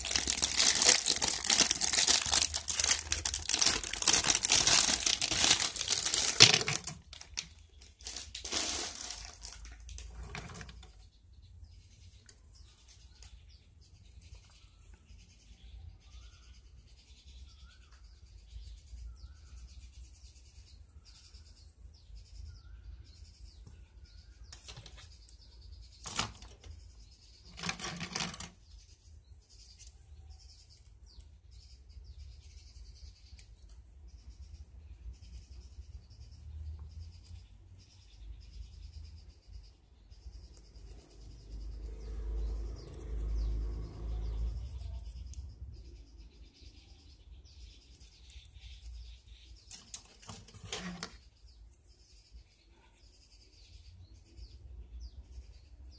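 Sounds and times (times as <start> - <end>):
plastic clicks and rattles: 0.0 - 10.9, 26.0 - 26.7, 27.5 - 28.6.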